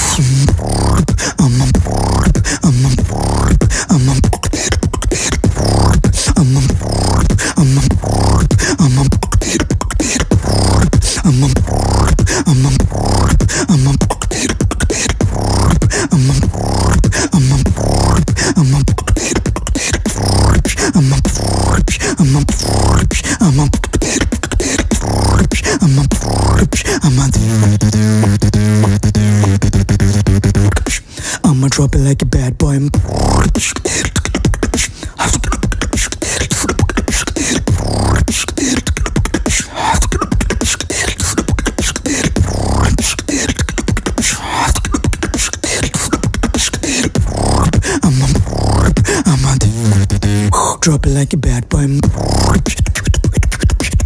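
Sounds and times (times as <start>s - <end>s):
person beatboxing: 0.0s - 54.0s.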